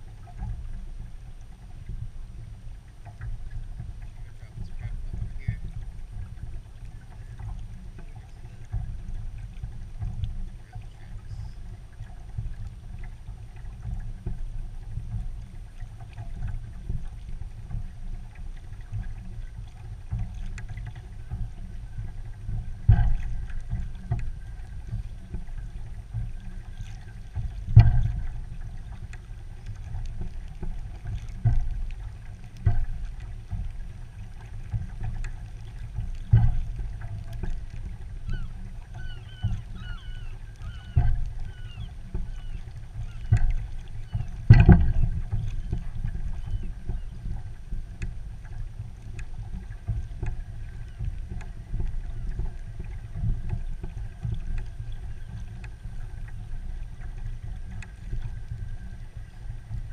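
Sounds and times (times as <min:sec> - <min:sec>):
muffled low rumble of kayak: 0:00.0 - 0:59.9.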